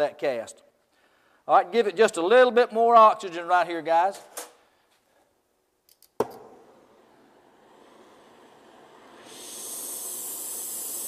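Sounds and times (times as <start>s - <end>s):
gas torch flame hissing: 6.7s - 11.0s.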